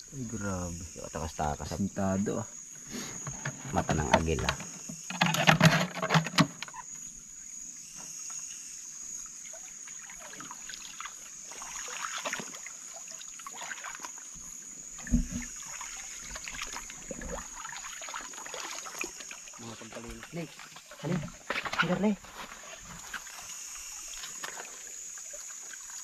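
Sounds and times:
night insects droning: 0.0s - 26.0s
small ticks and rustles: 2.6s - 26.0s
faint trickling water: 8.3s - 26.0s
dull thump: 15.0s - 15.5s.

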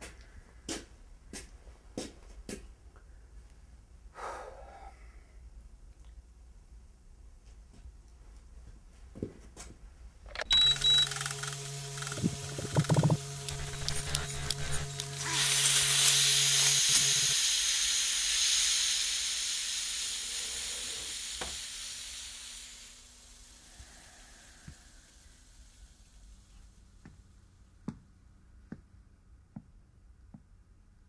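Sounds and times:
loud hiss: 10.4s - 27.0s.

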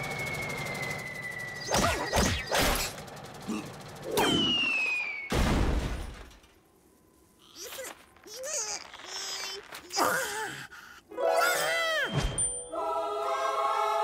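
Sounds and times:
falling whistle: 0.0s - 2.1s, 4.2s - 5.3s
high whine over low whirr: 0.0s - 5.3s
cartoon whacks: 1.7s - 2.9s.

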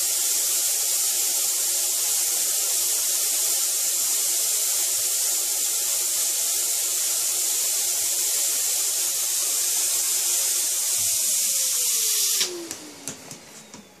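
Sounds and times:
vacuum cleaner suction hiss: 0.0s - 14.0s
motor winding down whine: 9.2s - 14.0s.

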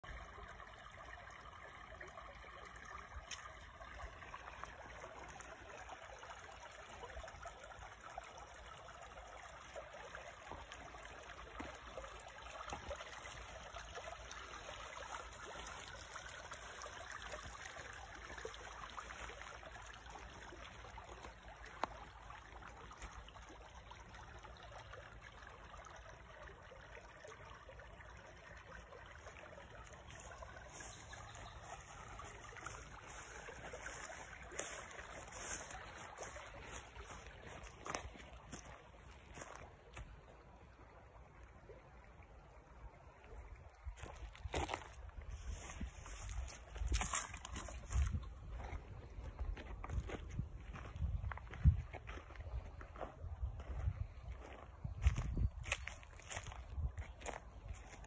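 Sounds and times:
creek trickling over stones: 0.0s - 58.0s.

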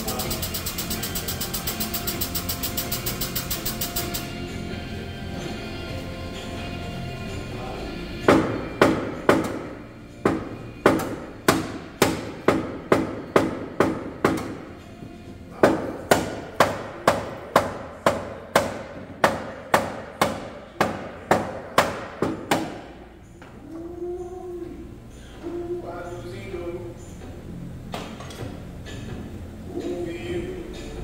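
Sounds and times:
hammer striking sheet metal: 0.0s - 4.3s.

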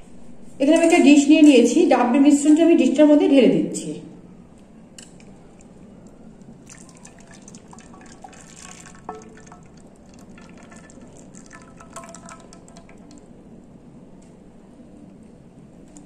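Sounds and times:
liquid trickling into dish: 6.4s - 13.4s.

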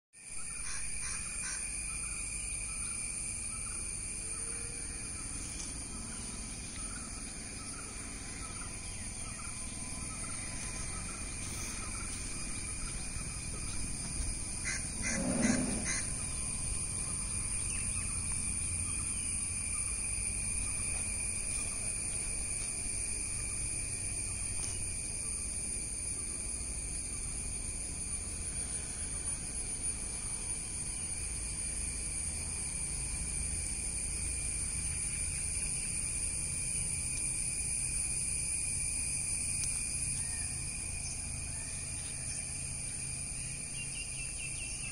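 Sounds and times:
high-pitched insect drone: 0.2s - 44.9s
birds calling: 0.4s - 22.3s.

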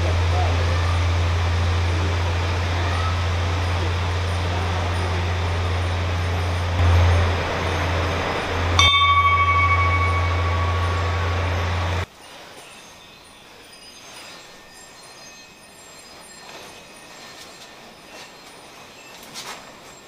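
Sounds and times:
vehicle engine humming: 0.0s - 12.1s
bell-like ringing tone: 3.6s - 12.1s.

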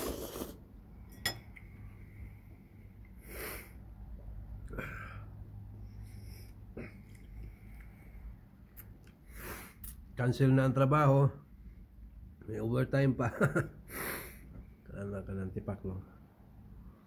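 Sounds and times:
person sniffing: 0.0s - 0.6s, 3.2s - 3.8s, 9.3s - 9.8s, 13.9s - 14.5s
low steady hum: 0.0s - 17.0s.

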